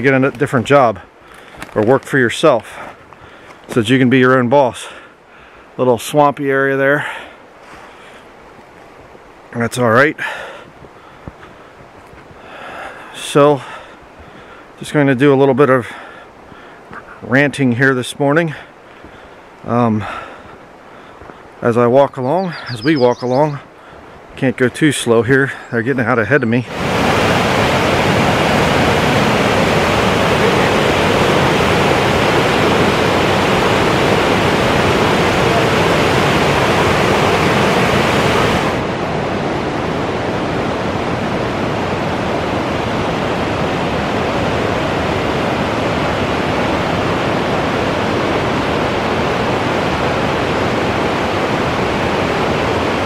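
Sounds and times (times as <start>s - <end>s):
river rapids rushing: 26.6s - 53.0s.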